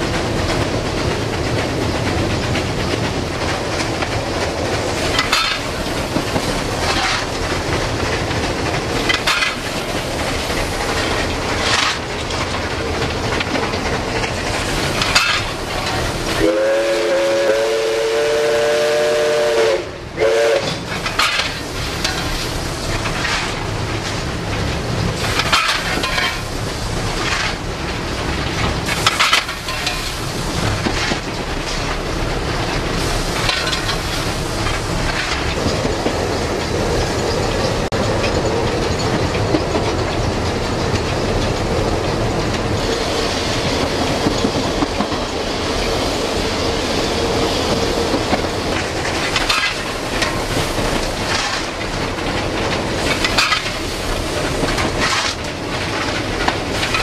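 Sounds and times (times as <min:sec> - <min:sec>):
steam locomotive running: 0:00.0 - 0:57.0
chord steam whistle: 0:16.4 - 0:20.7.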